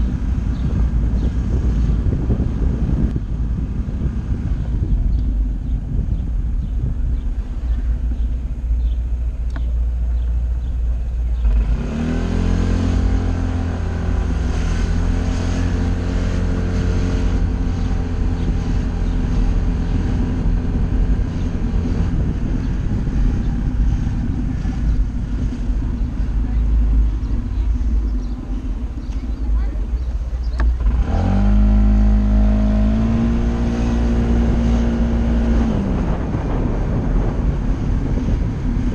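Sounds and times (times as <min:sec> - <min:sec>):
scooter engine accelerating: 0:10.6 - 0:38.9.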